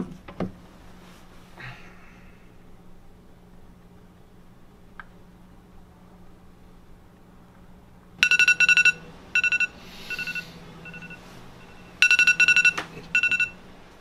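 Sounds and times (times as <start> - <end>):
phone alarm beeping: 8.2 - 13.6.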